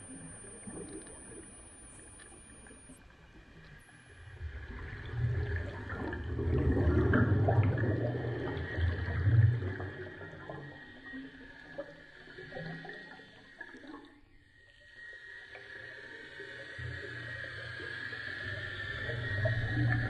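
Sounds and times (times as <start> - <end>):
underwater air bubbles gurgling: 0.0 - 3.0, 4.2 - 13.9.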